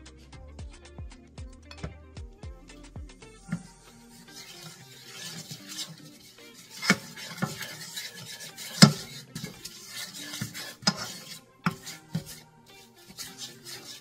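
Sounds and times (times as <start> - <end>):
spoon scraping a pan: 1.6 - 2.0, 3.4 - 14.0
spoon knocking against pan: 6.7 - 12.4.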